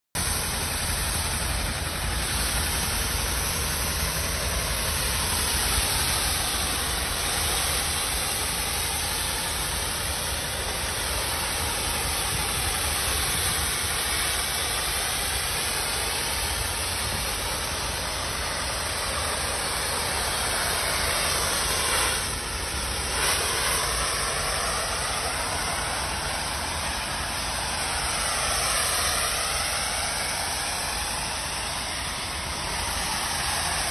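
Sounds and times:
steady low rumble: 0.2s - 33.9s
steam jet hissing: 0.2s - 33.9s.

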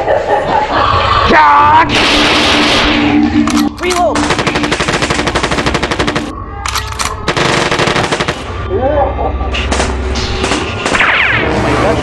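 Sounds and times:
rapid machine-gun fire: 1.9s - 2.9s, 4.1s - 6.3s, 7.2s - 8.6s, 9.7s - 12.0s.

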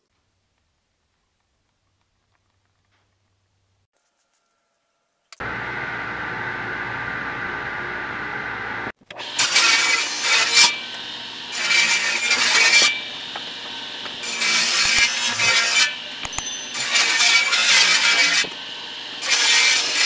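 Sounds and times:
table saw blade humming: 5.4s - 20.0s
saw blade ripping wood: 9.0s - 18.6s, 19.2s - 20.0s.

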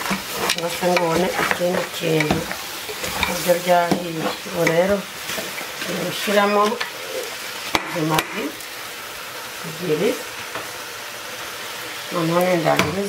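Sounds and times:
meat sizzling in a saucepan: 0.0s - 13.0s.

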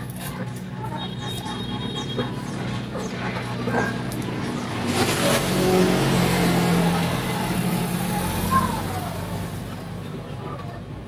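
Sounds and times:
vehicle engine passing by: 0.0s - 11.0s.

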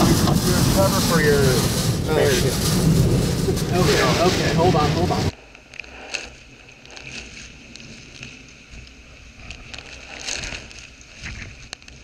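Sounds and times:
wind buffeting microphone: 0.0s - 5.3s
driving rain: 0.0s - 5.4s
strong wind: 0.0s - 5.4s.

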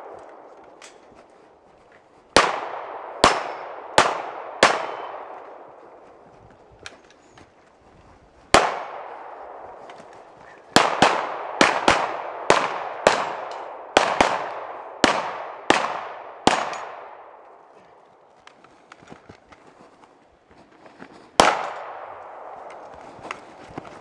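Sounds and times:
gunshots echoing: 0.0s - 1.2s, 2.3s - 6.2s, 8.5s - 17.8s, 21.4s - 23.5s.

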